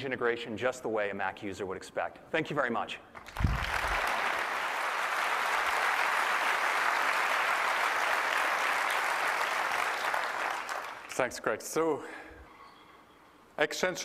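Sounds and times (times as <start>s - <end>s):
audience applauding: 3.2s - 11.1s.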